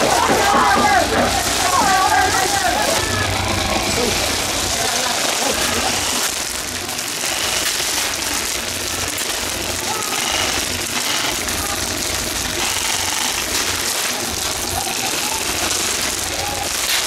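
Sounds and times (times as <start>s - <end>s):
faint shouting: 0.0s - 4.4s, 9.8s - 10.4s, 14.1s - 16.9s
airsoft guns firing automatic volleys: 0.0s - 17.0s.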